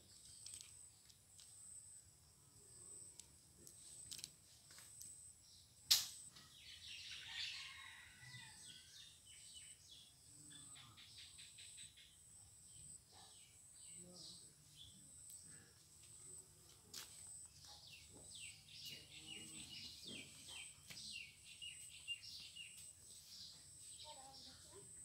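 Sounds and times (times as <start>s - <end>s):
sharp click: 5.9s - 6.4s
small birds chirping: 8.7s - 16.4s, 17.3s - 25.0s.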